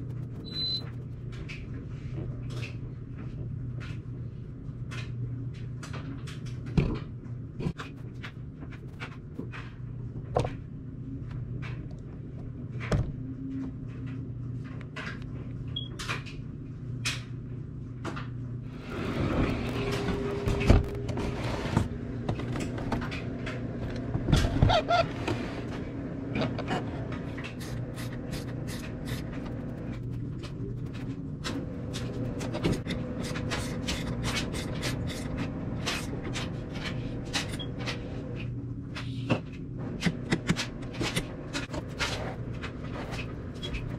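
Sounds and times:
steady low hum: 0:00.0 - 0:43.9.

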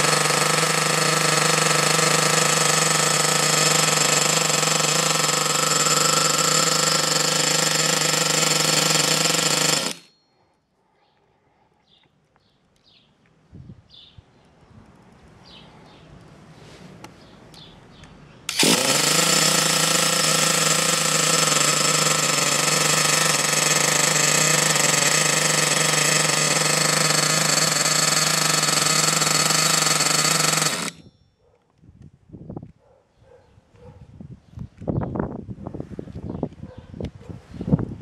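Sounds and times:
nitro engine idling: 0:00.0 - 0:10.1, 0:18.5 - 0:31.1.

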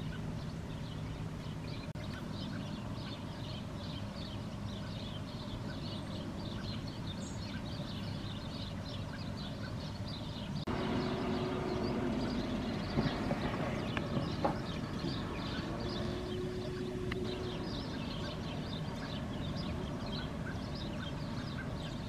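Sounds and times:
low hum: 0:00.0 - 0:22.0
low steady rumble: 0:00.0 - 0:22.0
small birds chirping: 0:00.0 - 0:22.0.

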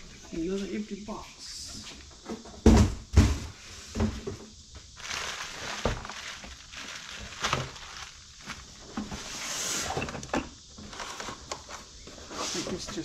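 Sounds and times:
plastic bag rustling: 0:04.9 - 0:09.5
cardboard sliding and scraping: 0:05.0 - 0:10.1.

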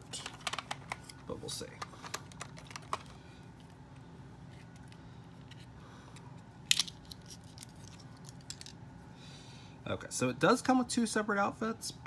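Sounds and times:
faint steady low hum: 0:00.0 - 0:12.0
plastic pieces ticking: 0:00.1 - 0:01.1, 0:01.7 - 0:03.2.

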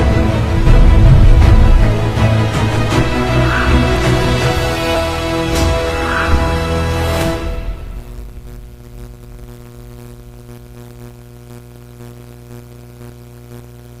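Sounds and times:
closing ident music: 0:00.0 - 0:08.9
steady low hum: 0:00.0 - 0:14.0.

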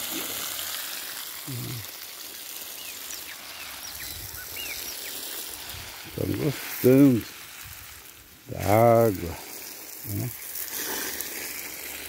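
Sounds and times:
steady hiss: 0:00.0 - 0:12.0
low voice: 0:01.5 - 0:01.9, 0:08.5 - 0:09.4, 0:10.1 - 0:10.4
small bird chirping: 0:02.7 - 0:05.3.

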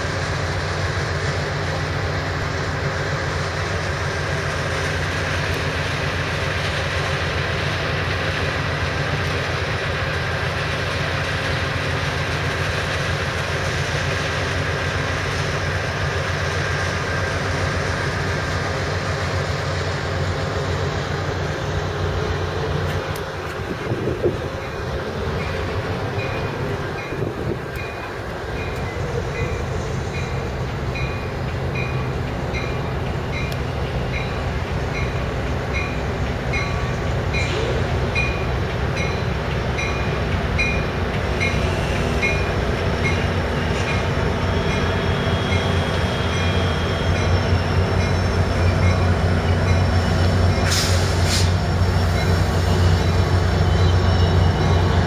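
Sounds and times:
train cars rolling: 0:00.0 - 0:55.0
locomotive bell ringing: 0:24.5 - 0:50.7, 0:51.8 - 0:55.0.

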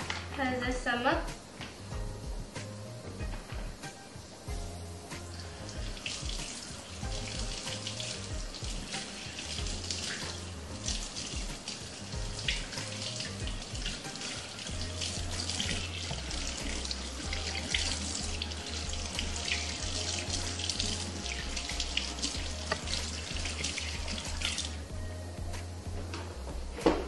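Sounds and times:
tap water splashing into sink: 0:05.7 - 0:24.8.

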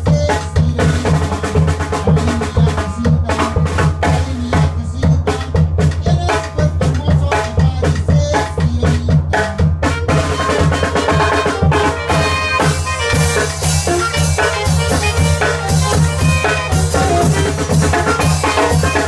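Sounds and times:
bass drum: 0:00.0 - 0:19.0
snare drum: 0:00.1 - 0:19.0
saxophones playing melody: 0:09.8 - 0:19.0.

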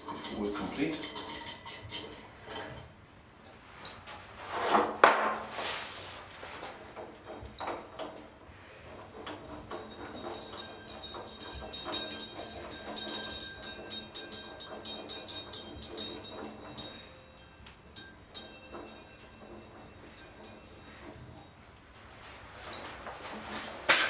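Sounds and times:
faint high ringing tones: 0:09.4 - 0:23.6.

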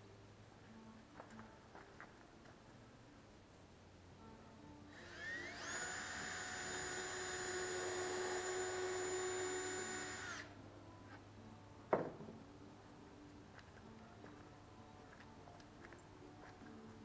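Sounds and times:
cordless drill whining: 0:04.9 - 0:10.5.

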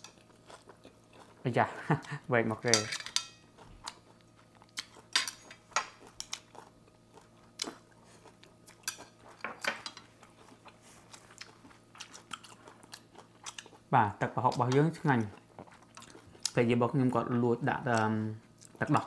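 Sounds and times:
chewing: 0:00.0 - 0:01.4, 0:03.5 - 0:13.9, 0:14.5 - 0:16.6, 0:17.9 - 0:19.0
chopsticks clicking on dishes: 0:04.8 - 0:06.5.

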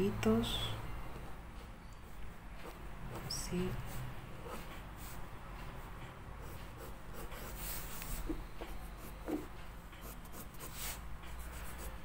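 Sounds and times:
pencil scratching on paper: 0:02.6 - 0:05.2, 0:06.4 - 0:12.0.

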